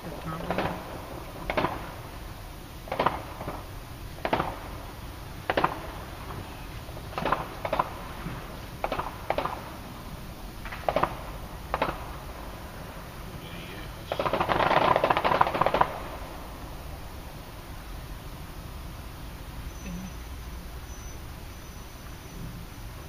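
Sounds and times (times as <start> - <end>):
fireworks bangs with echo: 0.0 - 17.0.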